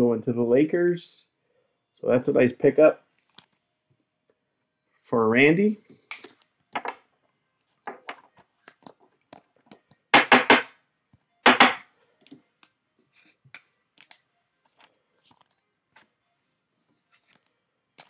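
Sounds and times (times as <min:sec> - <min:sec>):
cards tapping on tabletop: 0:06.2 - 0:07.0, 0:07.9 - 0:08.3, 0:09.7 - 0:10.7, 0:11.5 - 0:11.8.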